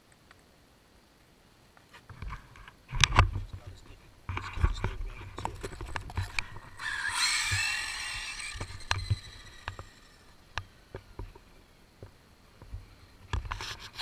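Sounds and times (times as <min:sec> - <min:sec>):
rc car electric motor whining: 0:06.2 - 0:10.6.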